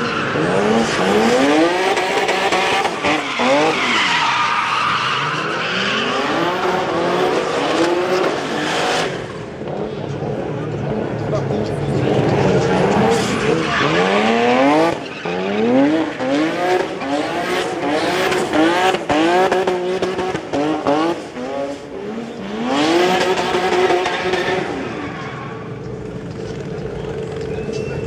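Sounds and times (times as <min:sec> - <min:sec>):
car engine revving: 0:00.0 - 0:28.0
tyres squealing on tarmac: 0:02.8 - 0:06.7, 0:12.2 - 0:16.3, 0:23.9 - 0:26.0.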